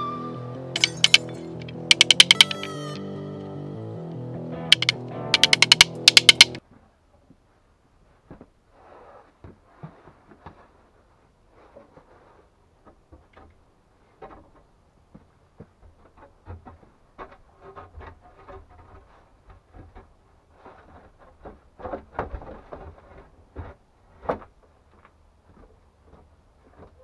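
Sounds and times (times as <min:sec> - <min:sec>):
wooden planks knocking and scraping: 0:00.8 - 0:02.7, 0:04.7 - 0:06.6, 0:11.6 - 0:27.0.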